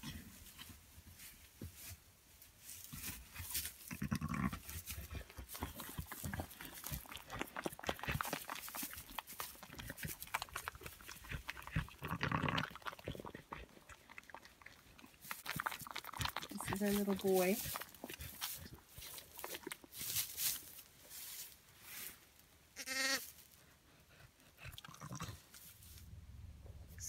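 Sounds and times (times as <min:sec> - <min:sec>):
sheep rustling in straw: 0:00.3 - 0:06.9, 0:16.6 - 0:22.5
sheep calls: 0:22.8 - 0:23.3.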